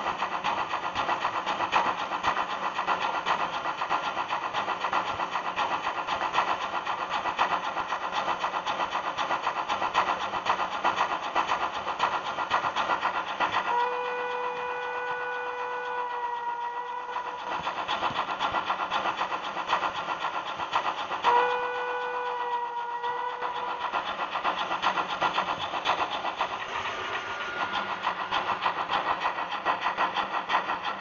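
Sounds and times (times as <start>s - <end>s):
steam locomotive exhaust chuffs: 0.0s - 31.0s
steam whistle: 13.7s - 17.4s, 21.3s - 23.7s.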